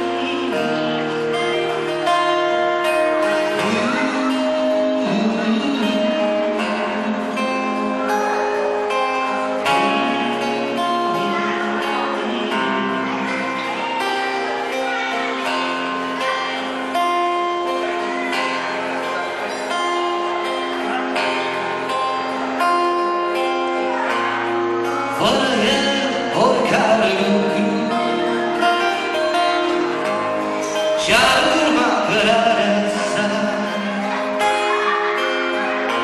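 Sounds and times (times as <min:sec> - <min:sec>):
man singing: 0:00.0 - 0:14.3, 0:24.8 - 0:36.0
acoustic guitar: 0:00.0 - 0:36.0.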